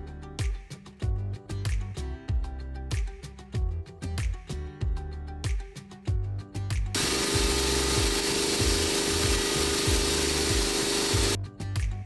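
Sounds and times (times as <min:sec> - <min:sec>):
background music with low beat: 0:00.0 - 0:12.0
air compressor running: 0:07.0 - 0:11.4.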